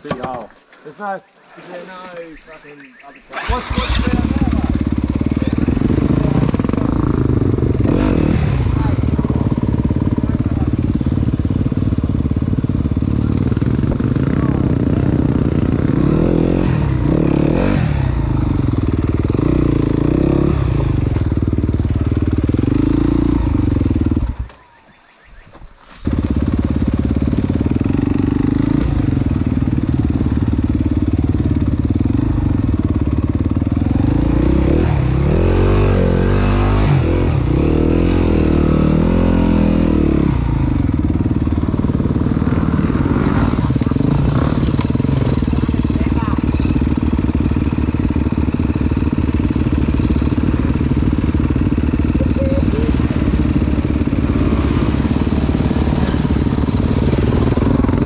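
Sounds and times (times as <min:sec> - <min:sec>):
dirt bike engine revving: 0:03.1 - 0:24.6, 0:26.0 - 0:58.0.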